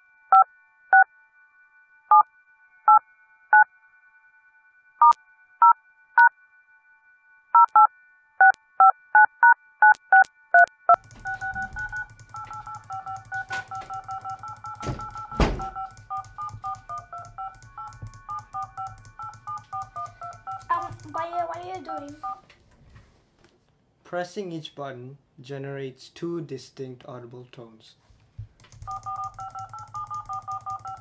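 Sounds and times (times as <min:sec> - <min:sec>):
touch-tone dialing beeps: 0:07.6 - 0:22.4, 0:28.8 - 0:31.0.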